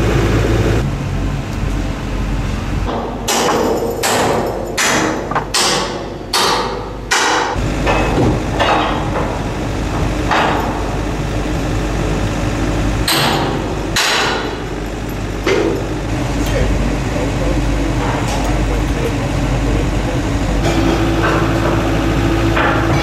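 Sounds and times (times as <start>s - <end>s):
steady low hum: 0.0s - 23.0s
hammer striking steel: 2.9s - 9.4s, 13.1s - 14.6s.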